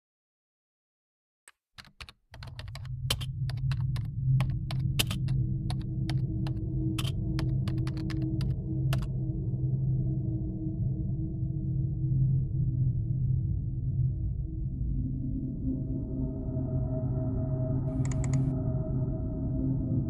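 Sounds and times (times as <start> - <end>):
typing on computer keyboard: 1.5 - 9.1, 18.0 - 18.5.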